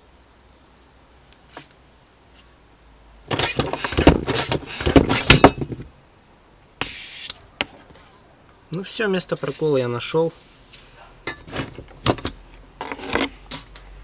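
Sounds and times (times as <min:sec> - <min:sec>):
short hiss: 0:01.4 - 0:01.8, 0:06.8 - 0:07.4, 0:10.3 - 0:11.0
rubbing and clattering on inner tube: 0:03.3 - 0:05.9.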